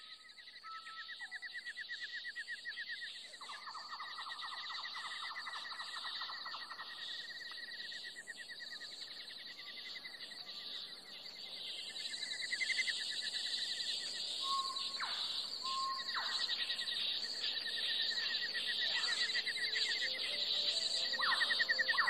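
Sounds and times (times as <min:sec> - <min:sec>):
insects trilling: 0:00.0 - 0:22.0.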